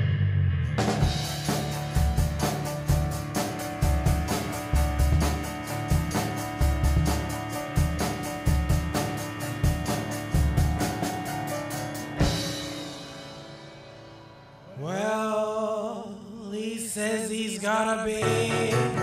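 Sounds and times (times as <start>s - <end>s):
song with drums: 0.8s - 14.1s, 18.2s - 19.0s
person singing: 14.7s - 19.0s.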